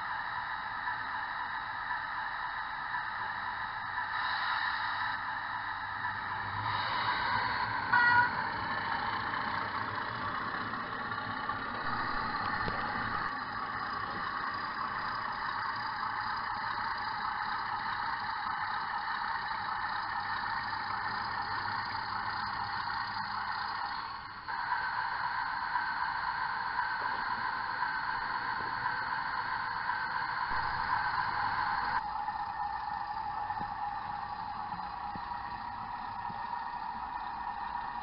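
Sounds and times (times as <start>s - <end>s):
diesel locomotive running through speaker: 0.0s - 38.0s
locomotive horn toot: 7.2s - 8.5s.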